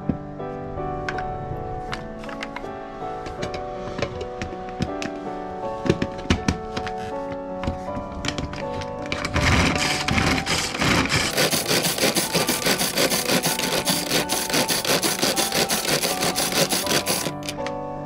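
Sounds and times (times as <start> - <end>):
pull-string food chopper whirring: 9.2 - 17.6.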